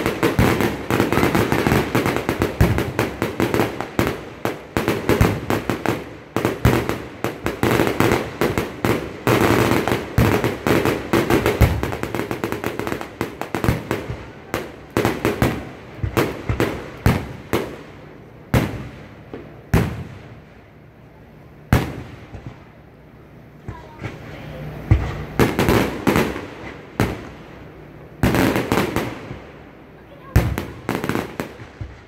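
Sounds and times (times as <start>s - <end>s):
fireworks crackle: 0.0s - 20.8s, 21.7s - 22.8s, 23.6s - 32.0s
fireworks bursting: 0.0s - 32.0s.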